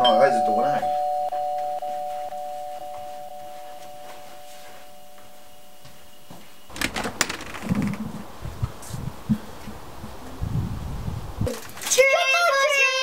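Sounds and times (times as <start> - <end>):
electronic doorbell chime: 0.0 - 6.3
door latch clicking: 6.7 - 8.0.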